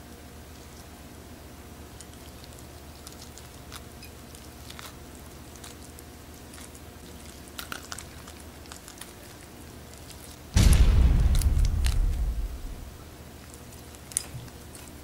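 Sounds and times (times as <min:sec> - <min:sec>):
faint low hum: 0:00.0 - 0:15.0
lobster meat tearing: 0:02.0 - 0:10.5, 0:13.4 - 0:15.0
shell crackling: 0:10.0 - 0:13.0.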